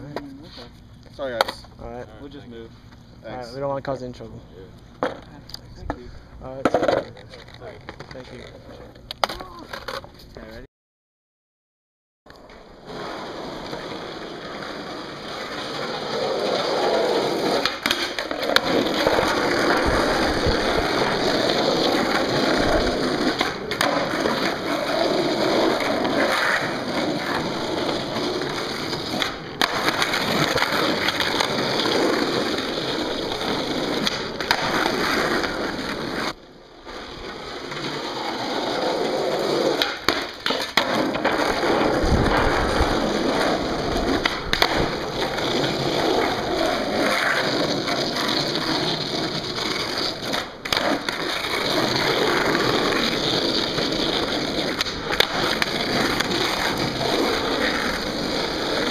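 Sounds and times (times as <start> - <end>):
skateboard wheels rolling on pavement: 4.6 - 10.4, 12.3 - 58.9
skateboard clacks: 6.6 - 10.1, 12.3 - 36.4, 37.2 - 58.9.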